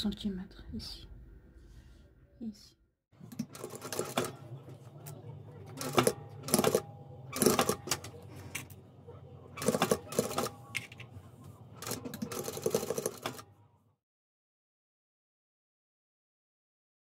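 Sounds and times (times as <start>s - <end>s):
sewing machine stitching: 3.2s - 4.4s, 5.7s - 8.1s, 9.6s - 10.5s, 11.8s - 13.4s.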